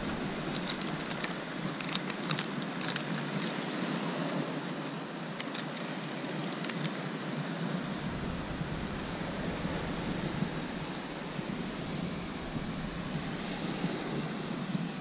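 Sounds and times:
surf washing: 0.0s - 15.0s.

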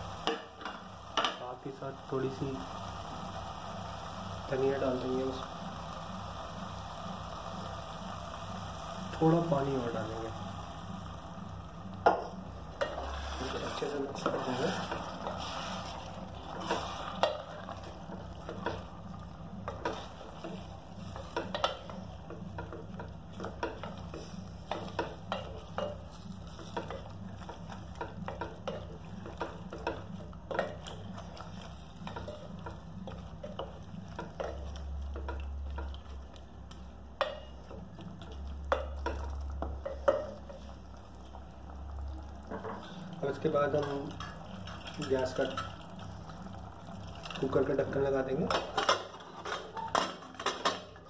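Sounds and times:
steady low hum: 0.0s - 48.7s
spatula scraping and knocking pot: 12.0s - 18.8s.

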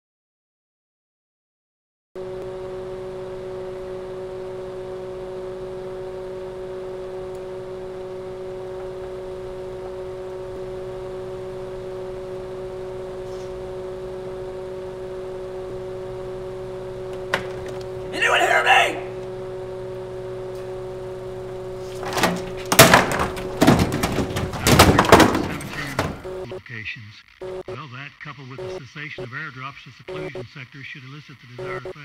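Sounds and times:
radio static hiss: 2.5s - 22.0s, 24.6s - 32.0s
droning tones: 19.1s - 26.6s.

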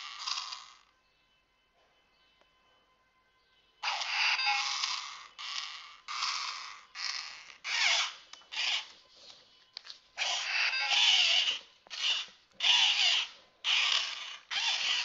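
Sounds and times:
toy robot clicks: 0.0s - 0.8s, 3.8s - 8.9s, 10.2s - 15.0s
toy robot motors whirring: 0.0s - 0.9s, 3.8s - 9.0s, 10.2s - 15.0s.

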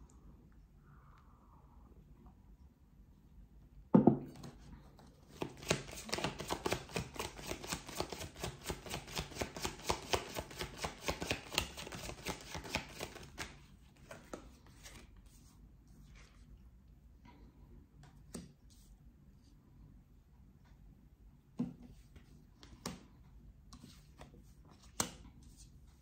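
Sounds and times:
knock on tabletop: 3.9s - 4.3s
cards being shuffled: 5.3s - 15.4s.

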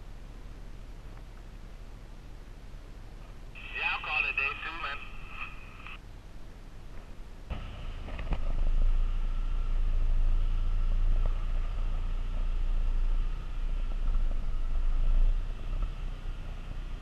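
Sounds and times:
faint steady whine: 0.0s - 17.0s
truck engine and road rumble: 0.0s - 17.0s.

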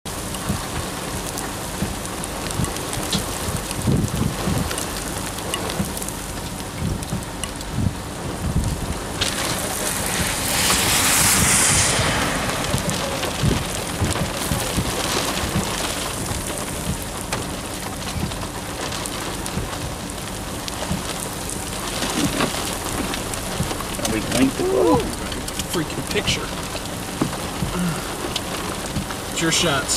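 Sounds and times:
rain falling: 0.1s - 29.9s
low thunder rumbles: 7.9s - 17.2s
rushing hiss: 9.0s - 15.0s.

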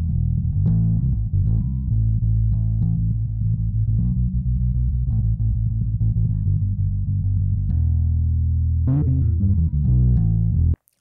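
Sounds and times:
overdriven electric bass notes: 0.0s - 10.8s.

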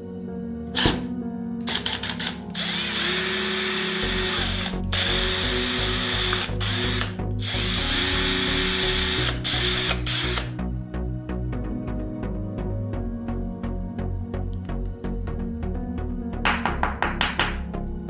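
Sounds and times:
drill motor drilling plastic: 0.8s - 10.5s
drill chuck ratcheting clicks: 1.6s - 10.5s.

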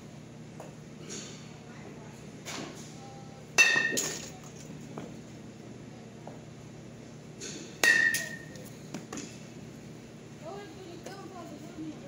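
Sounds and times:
bat cracking against ball: 7.4s - 9.4s.

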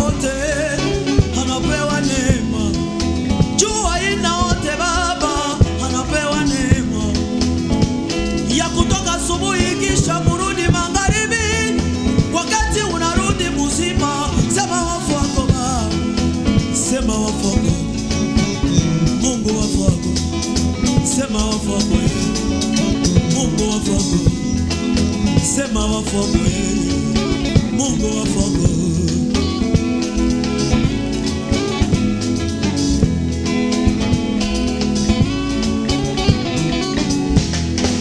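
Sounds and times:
male singers: 0.0s - 7.5s, 8.3s - 29.8s
drums: 0.0s - 38.0s
electric bass guitar: 0.0s - 38.0s.

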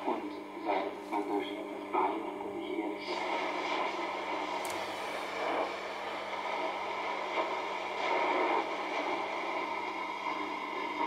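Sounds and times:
radio static and hiss: 0.0s - 11.0s
steady low hum: 0.0s - 11.0s.

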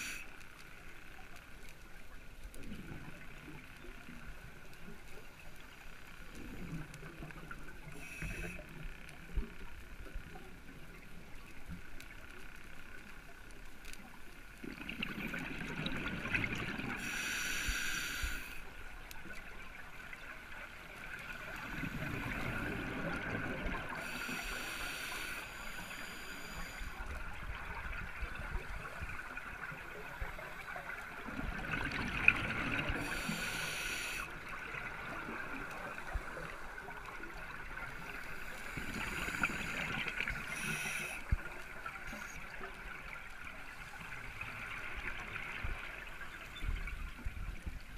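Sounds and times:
hissing regulator inhalations: 17.0s - 18.6s, 23.9s - 27.0s, 32.9s - 34.3s, 38.1s - 41.4s.

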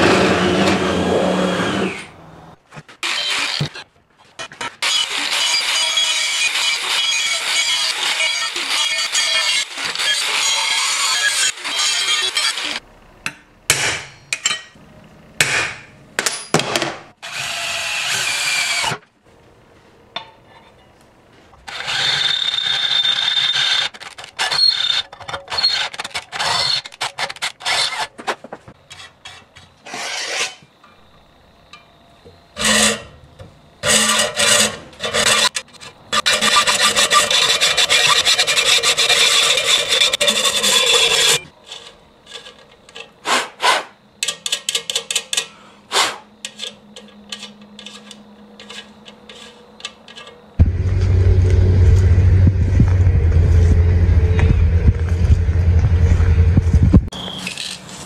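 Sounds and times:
drill boring through steel: 4.8s - 12.8s
hacksaw cutting rod: 33.8s - 41.5s, 43.2s - 44.6s, 45.9s - 50.3s.

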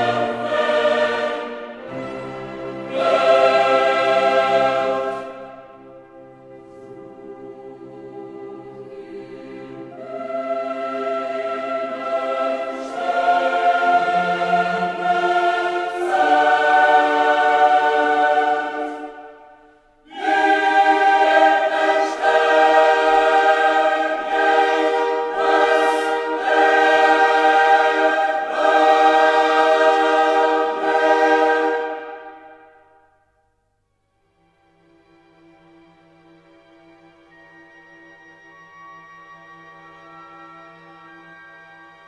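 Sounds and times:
choir singing held chords: 0.0s - 33.4s.

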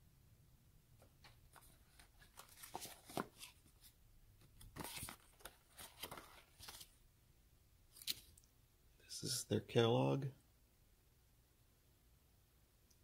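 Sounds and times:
paper cards rustling: 1.2s - 7.0s, 7.9s - 8.4s.

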